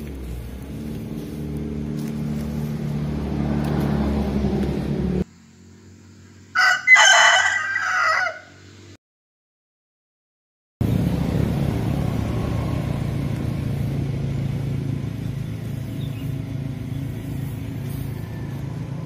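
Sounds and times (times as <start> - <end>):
low engine hum: 0.0 - 6.6, 10.8 - 19.0
rooster crowing: 6.5 - 8.6.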